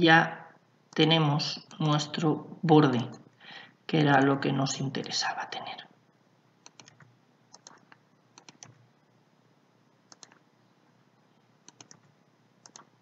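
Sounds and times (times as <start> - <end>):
mouse and keyboard clicks: 6.6 - 8.8, 10.1 - 10.4, 11.6 - 12.9.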